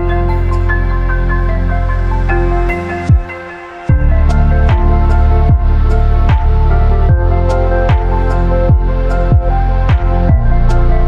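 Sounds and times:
deep bass line: 0.0s - 11.0s
kick drums falling in pitch: 3.1s - 3.3s, 5.5s - 6.5s, 8.7s - 10.4s.

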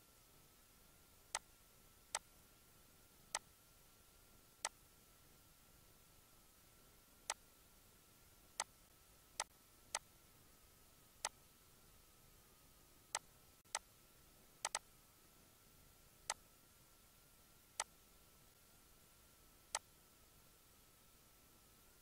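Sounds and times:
faint steady hiss: 0.0s - 22.0s
thin steady tone: 0.0s - 22.0s
computer mouse clicking: 14.6s - 14.8s.

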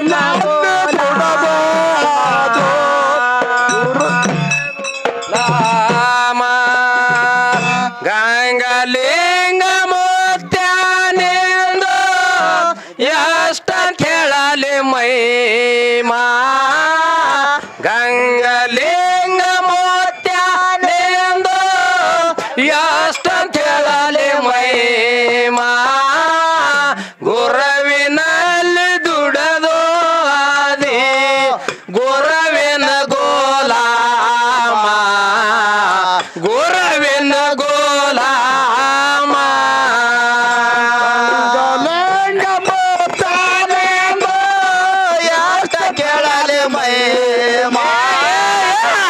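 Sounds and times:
man singing folk song: 0.0s - 4.5s, 5.3s - 49.0s
breaths between phrases: 27.0s - 27.2s.

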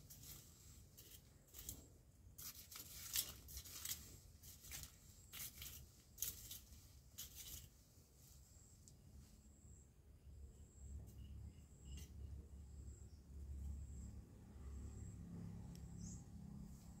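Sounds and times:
scraping and rustling in soil: 0.0s - 9.5s.

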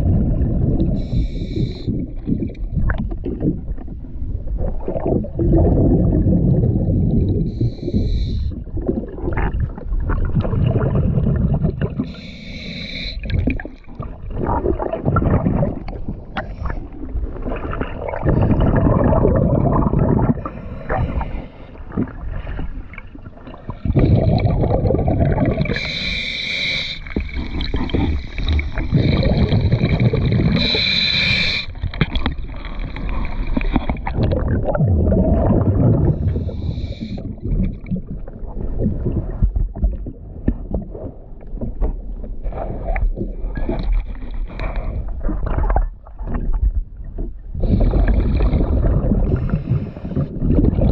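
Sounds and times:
bubbling exhaled air underwater: 0.0s - 50.9s
hissing regulator inhalations: 1.0s - 1.9s, 7.5s - 8.5s, 12.0s - 13.3s, 25.6s - 27.4s, 30.4s - 31.8s, 36.1s - 37.3s.

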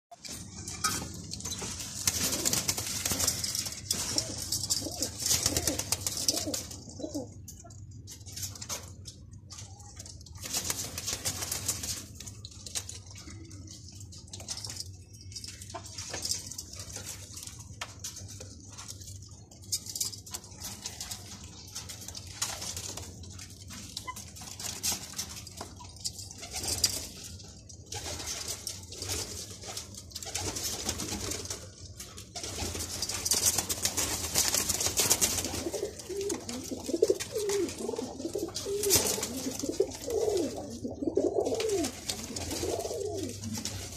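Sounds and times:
pigeons cooing: 1.5s - 7.5s, 35.3s - 43.9s.

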